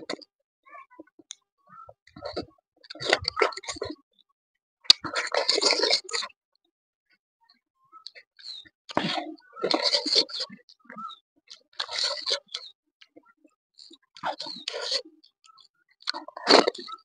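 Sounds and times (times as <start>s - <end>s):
person chewing wetly: 4.9s - 6.3s, 16.0s - 17.0s.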